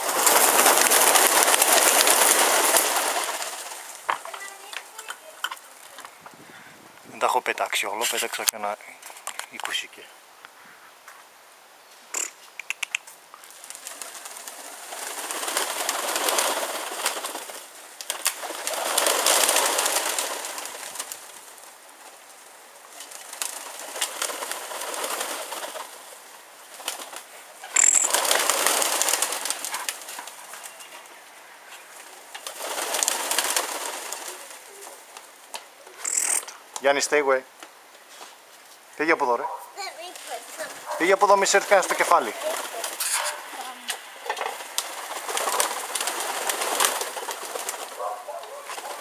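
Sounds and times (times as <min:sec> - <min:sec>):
pigeon wings whooshing: 0:00.0 - 0:05.1, 0:13.5 - 0:31.1, 0:31.9 - 0:35.2, 0:40.0 - 0:49.0
sharp clicks: 0:12.1 - 0:13.2, 0:27.8 - 0:28.2, 0:36.0 - 0:36.9.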